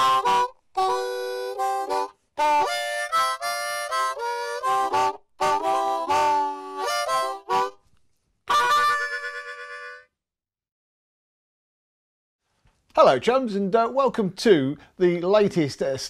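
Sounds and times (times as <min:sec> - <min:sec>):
reedy instrument playing chords: 0:00.0 - 0:07.8.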